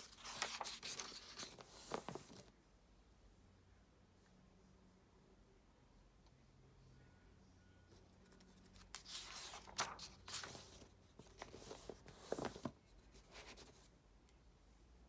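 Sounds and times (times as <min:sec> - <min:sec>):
paper pages turning: 0:00.0 - 0:02.5, 0:08.7 - 0:13.8.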